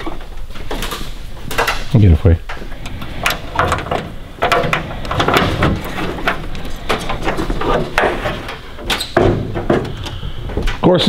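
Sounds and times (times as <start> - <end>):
metallic clicks and clunks: 0.0 - 10.9.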